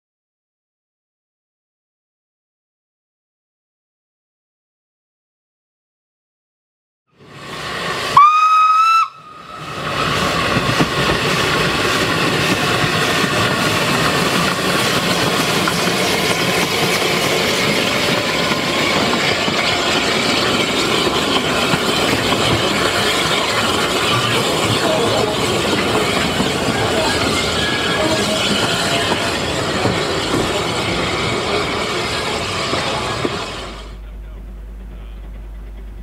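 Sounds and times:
steam hissing: 7.2 - 34.1
train running noise: 7.2 - 36.0
steam locomotive whistle: 8.1 - 9.8.

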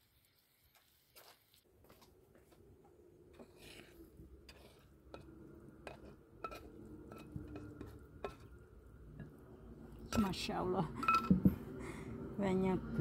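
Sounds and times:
spatula scraping frying pan: 3.4 - 8.6.

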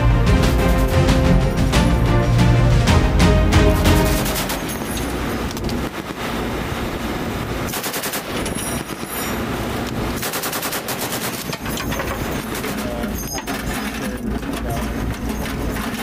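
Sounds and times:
machine gun automatic bursts: 3.8 - 4.9, 7.7 - 9.3, 10.2 - 14.2.

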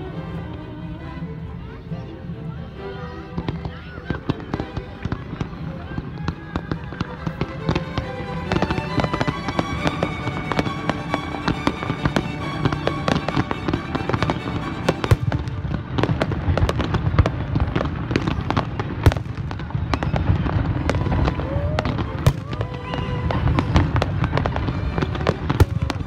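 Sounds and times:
fireworks bursting and crackling: 3.4 - 26.0
music with held tones: 7.5 - 16.1.

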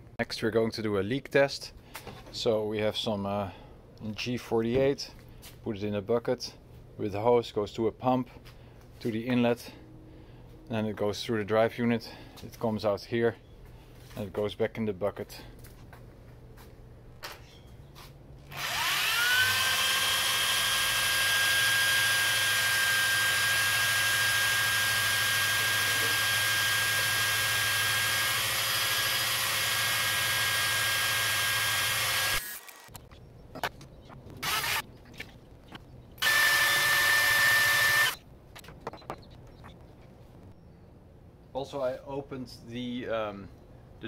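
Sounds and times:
electric drill motor whining: 18.5 - 32.9, 34.4 - 34.8, 36.2 - 38.2.

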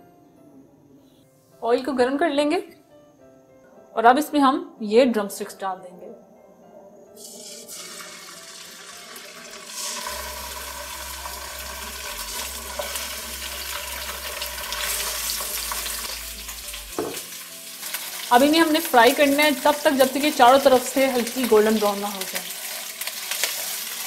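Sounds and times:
chicken sizzling in hot oil: 7.2 - 24.0.

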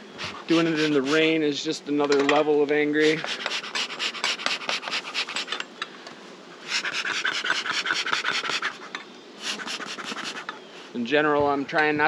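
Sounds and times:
smoker puffing air hiss: 0.0 - 1.6, 2.7 - 5.6, 6.2 - 11.1.

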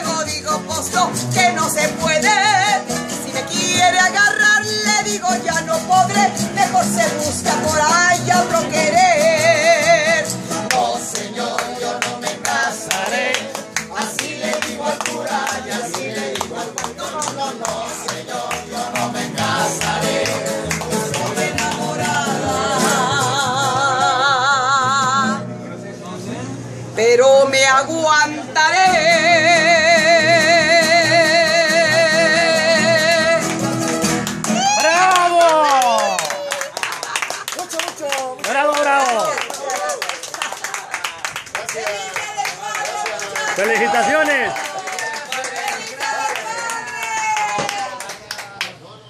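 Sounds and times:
woman singing: 0.0 - 10.3, 21.2 - 25.4, 27.5 - 33.6
strummed acoustic guitar: 0.0 - 27.0, 28.6 - 34.8
hands clapping: 10.6 - 22.2, 33.4 - 48.8.

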